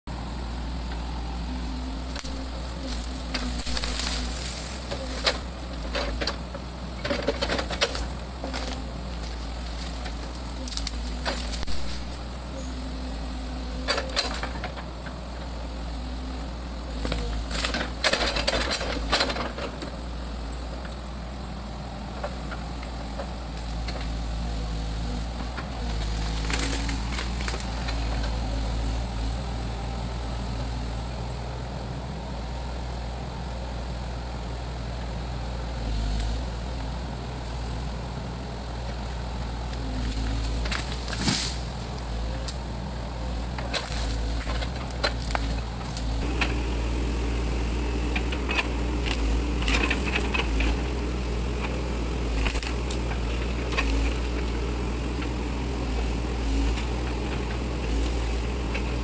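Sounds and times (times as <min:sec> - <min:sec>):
excavator diesel engine running: 0:00.1 - 0:59.0
branches crackling and snapping: 0:01.7 - 0:06.4, 0:07.0 - 0:12.3, 0:23.5 - 0:29.3, 0:39.7 - 0:42.6, 0:43.2 - 0:47.0, 0:48.0 - 0:55.7.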